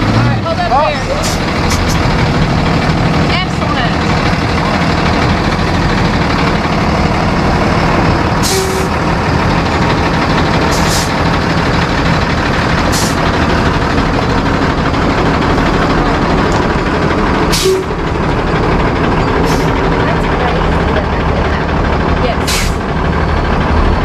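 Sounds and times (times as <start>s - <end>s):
truck engine running: 0.0s - 24.0s
air brake hisses: 8.4s - 8.9s, 10.7s - 11.2s, 12.9s - 13.2s, 22.5s - 22.8s.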